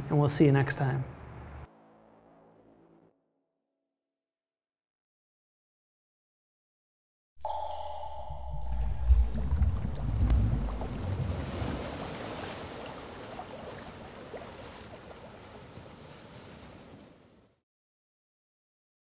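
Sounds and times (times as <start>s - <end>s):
deep rumble: 7.5s - 12.1s
rushing wave-like wash: 7.5s - 17.4s.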